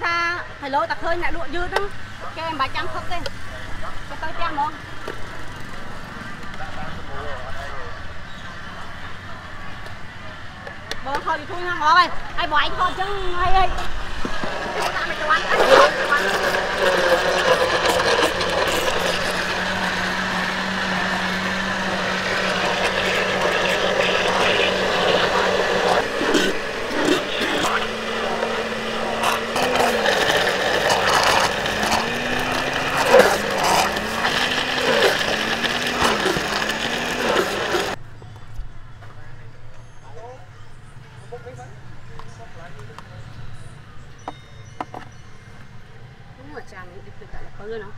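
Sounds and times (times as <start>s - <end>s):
blender motor running: 13.7s - 38.0s
clacks in blender: 14.3s - 38.0s.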